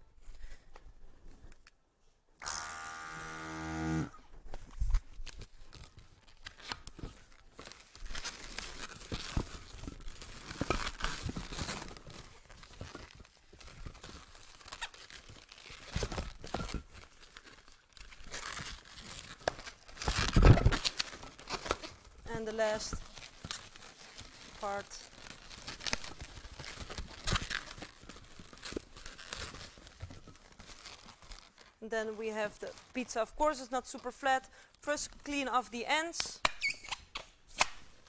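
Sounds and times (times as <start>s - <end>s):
balloons creaking and squeaking: 3.2s - 35.4s, 36.5s - 37.8s
pitched balloon squeal: 36.6s - 37.1s.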